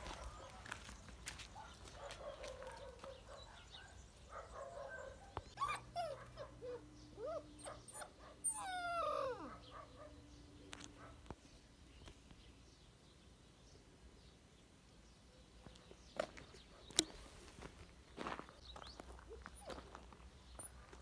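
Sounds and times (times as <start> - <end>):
puppy yips and whimpers: 5.0 - 10.1.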